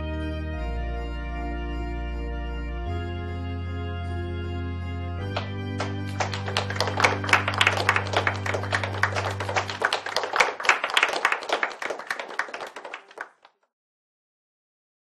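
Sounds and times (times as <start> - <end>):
background music: 0.0 - 13.2
children clapping: 5.3 - 13.6.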